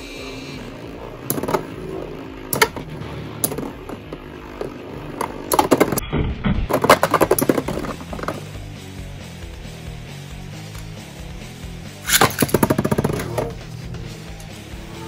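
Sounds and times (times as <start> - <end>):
spinning tops whirring: 0.0 - 6.0.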